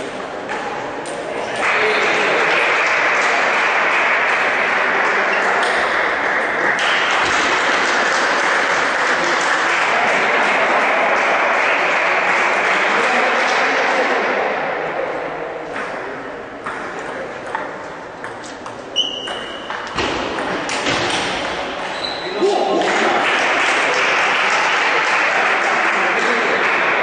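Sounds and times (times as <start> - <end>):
spectators applauding: 1.6 - 14.1, 22.4 - 27.0.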